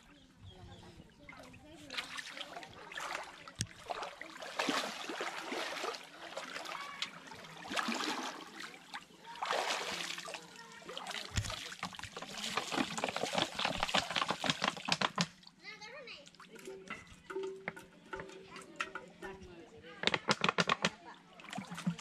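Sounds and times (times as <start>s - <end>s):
muddy water sloshing and splashing: 0.9s - 15.6s, 20.9s - 22.0s
water dripping: 1.9s - 15.6s.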